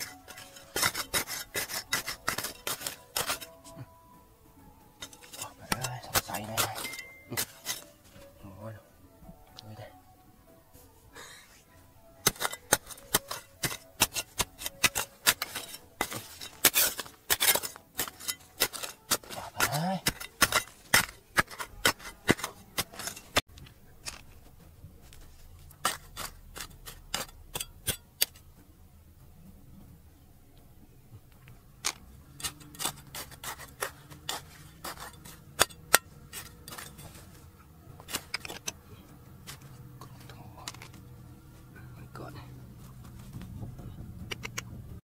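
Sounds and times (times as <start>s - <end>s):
digging tool striking stone: 0.0s - 3.8s, 5.0s - 8.0s, 12.2s - 24.3s, 25.7s - 28.5s, 31.8s - 37.3s, 38.0s - 38.8s.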